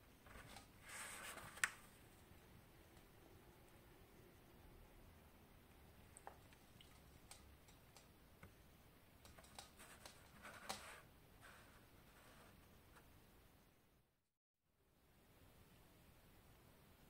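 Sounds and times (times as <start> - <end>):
faint clicks and ticks: 1.6 - 3.8, 5.6 - 11.1.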